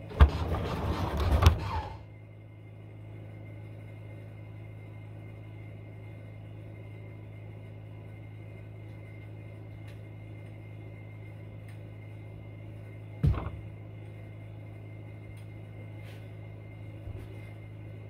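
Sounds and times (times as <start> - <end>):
low electrical hum: 0.0 - 18.0
dull thump: 13.2 - 13.6.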